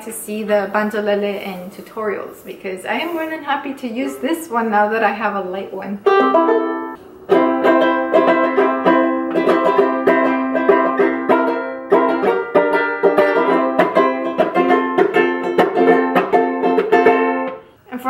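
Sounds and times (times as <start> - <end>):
banjo ukulele strummed: 6.0 - 17.7.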